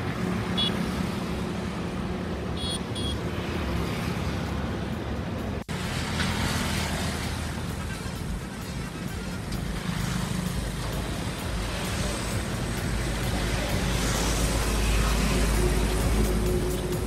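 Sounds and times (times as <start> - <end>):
vehicle engine rumble: 0.0 - 17.0
road hiss: 3.7 - 17.0.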